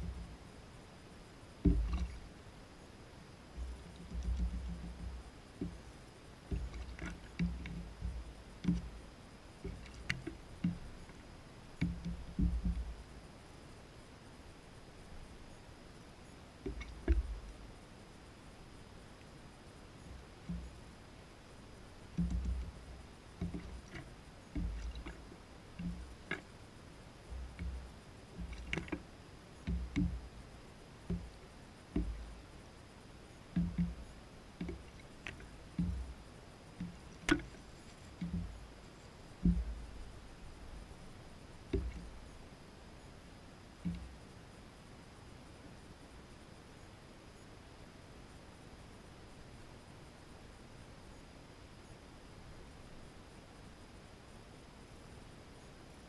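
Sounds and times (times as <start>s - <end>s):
beak tapping on plastic: 1.6s - 2.2s, 3.6s - 5.8s, 6.5s - 9.0s, 9.6s - 11.2s, 11.8s - 12.9s, 16.6s - 17.5s, 22.2s - 22.8s, 23.4s - 26.5s, 27.3s - 29.0s, 29.6s - 30.3s, 31.1s - 32.3s, 33.5s - 36.2s, 36.8s - 38.7s, 41.7s - 42.1s
gull pecking and stepping: 1.6s - 2.3s, 3.5s - 13.2s, 16.6s - 17.7s, 21.9s - 32.6s, 33.4s - 42.5s
water sloshing and splashing: 1.6s - 2.4s, 3.5s - 13.2s, 16.6s - 17.7s, 21.8s - 32.5s, 33.4s - 42.3s.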